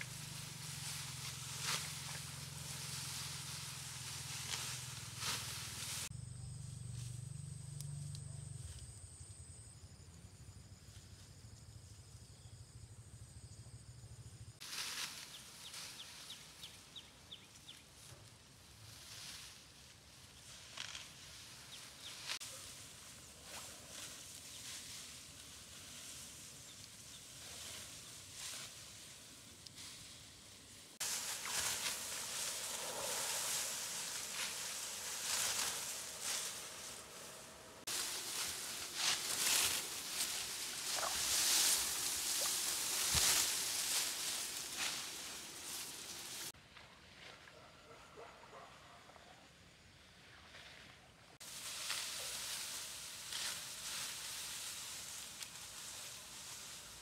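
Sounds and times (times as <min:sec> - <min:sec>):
rustling: 0:00.0 - 0:06.1, 0:20.4 - 0:46.6, 0:51.4 - 0:57.0
high insect tones: 0:00.0 - 0:17.6, 0:31.0 - 0:46.5.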